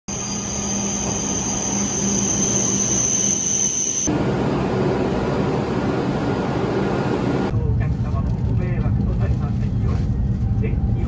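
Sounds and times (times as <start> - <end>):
train high-pitched squeal: 0.1 - 4.1
train running hum: 0.1 - 11.0.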